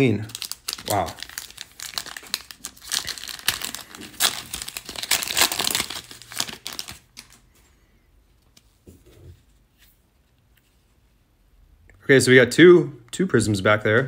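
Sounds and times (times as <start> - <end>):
cards crinkling and scraping: 0.2 - 7.6.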